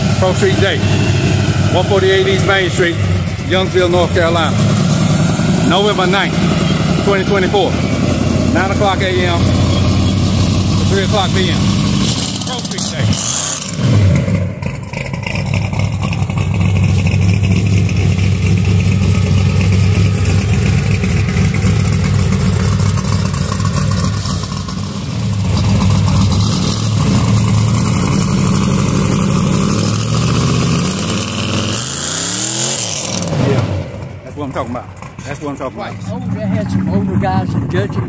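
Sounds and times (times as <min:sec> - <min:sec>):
car engine revving: 0:00.0 - 0:38.0.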